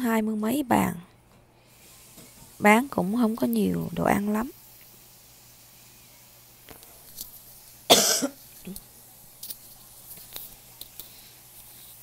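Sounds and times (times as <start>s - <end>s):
person coughing: 7.9s - 8.4s.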